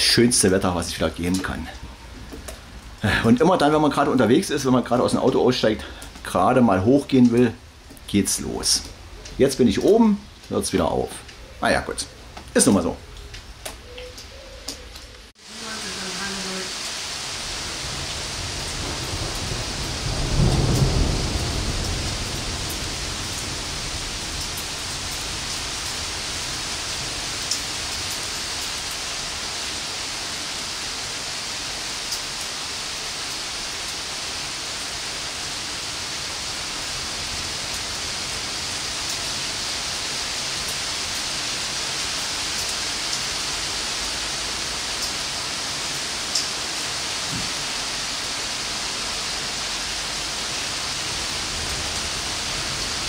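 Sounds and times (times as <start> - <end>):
steady rain hissing: 0.0 - 53.0
low rumble of thunder: 17.5 - 27.3.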